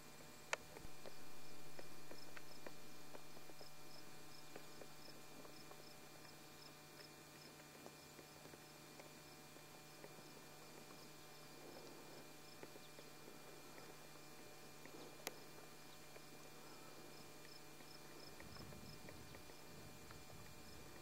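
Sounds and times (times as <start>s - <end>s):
insect chirping: 0.8s - 7.5s.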